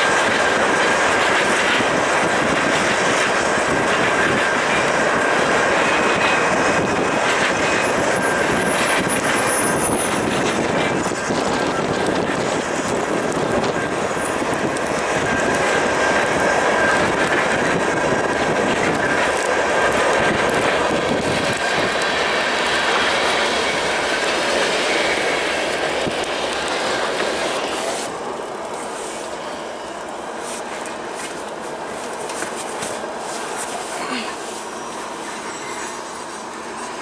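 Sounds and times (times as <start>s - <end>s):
train wheels rumbling on track: 0.0s - 37.0s
high-pitched wheel squeal: 5.8s - 10.6s, 34.5s - 37.0s.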